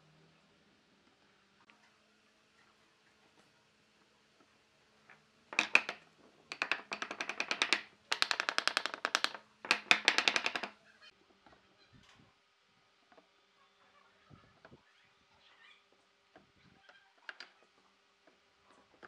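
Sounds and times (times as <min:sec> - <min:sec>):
hammer tapping wood: 0:05.6 - 0:10.8.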